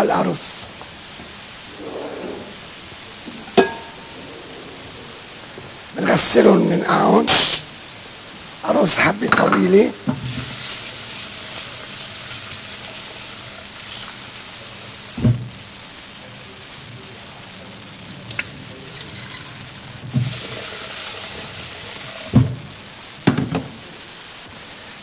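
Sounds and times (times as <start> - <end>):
kitchen tap running: 10.0 - 15.4, 18.1 - 23.7.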